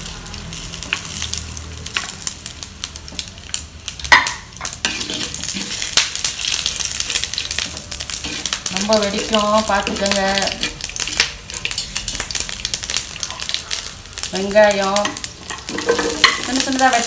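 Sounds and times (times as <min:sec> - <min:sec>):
spices sizzling in hot oil: 0:00.0 - 0:17.0
wooden spatula scraping pan: 0:04.8 - 0:06.0.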